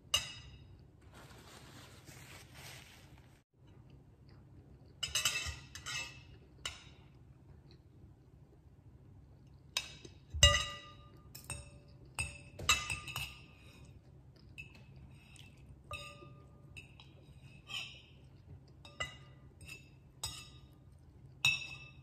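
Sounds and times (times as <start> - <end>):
cutlery clinking on ceramic bowl: 0.0 - 0.8, 5.0 - 7.2, 9.7 - 13.9, 15.9 - 22.0.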